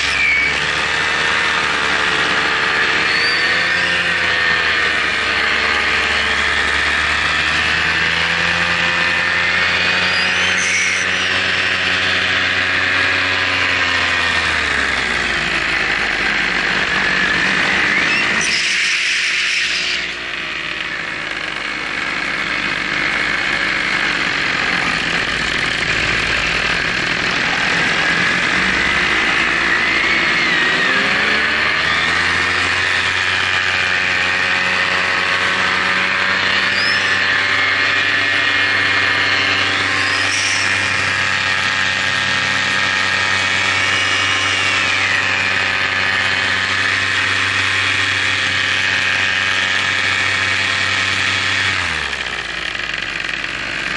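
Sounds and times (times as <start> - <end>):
drone motors and propellers: 0.0 - 53.9.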